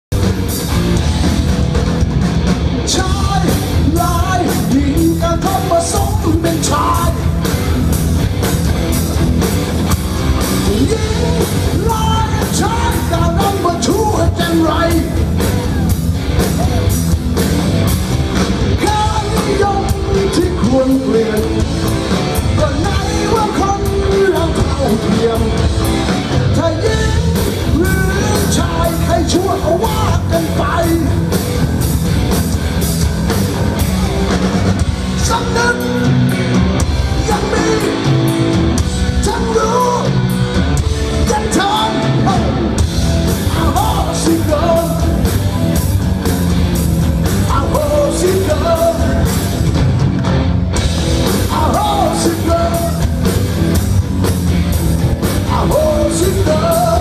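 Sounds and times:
rock band playing live: 0:00.0 - 0:57.0
person singing: 0:02.9 - 0:07.4, 0:10.6 - 0:16.0, 0:18.8 - 0:21.7, 0:22.4 - 0:31.3, 0:37.1 - 0:38.4, 0:39.2 - 0:40.4, 0:41.2 - 0:42.7, 0:43.4 - 0:45.3, 0:47.4 - 0:49.5, 0:51.4 - 0:53.2, 0:55.4 - 0:57.0.

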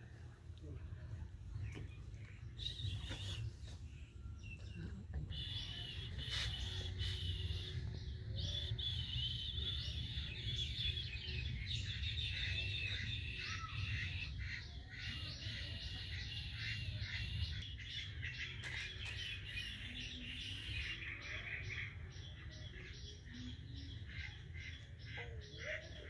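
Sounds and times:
small birds chirping: 0:01.0 - 0:26.0.

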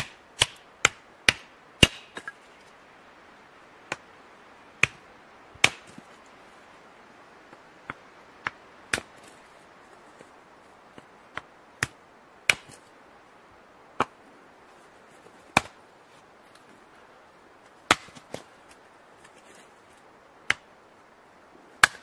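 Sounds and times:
hatchet chopping wood: 0:00.0 - 0:02.4, 0:04.8 - 0:05.0, 0:05.6 - 0:06.1, 0:07.9 - 0:09.4, 0:11.3 - 0:12.9, 0:15.5 - 0:15.8, 0:17.9 - 0:18.5, 0:20.4 - 0:20.7, 0:21.8 - 0:22.0.

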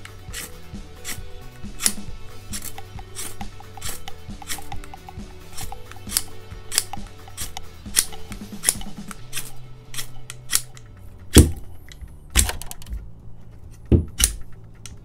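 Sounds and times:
ferro rod scraped on knife spine: 0:00.0 - 0:10.9
knocking strokes: 0:00.0 - 0:15.0.

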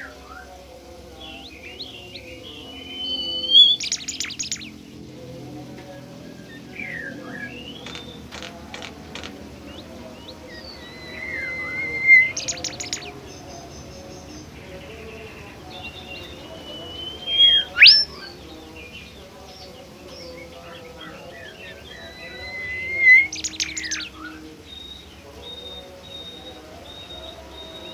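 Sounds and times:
bird whistling song: 0:01.8 - 0:04.8, 0:06.4 - 0:13.6, 0:15.9 - 0:18.3, 0:21.4 - 0:27.9.

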